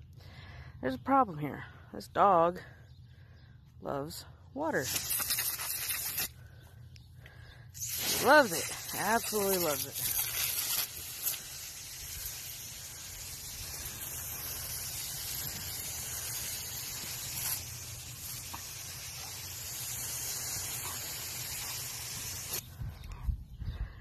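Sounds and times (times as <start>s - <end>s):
hose nozzle spraying water: 4.7s - 6.4s, 7.8s - 22.6s.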